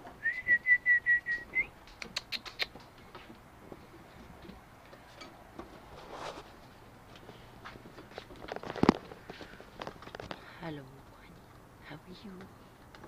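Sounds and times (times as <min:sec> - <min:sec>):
high whistle-like tone: 0:00.2 - 0:01.7.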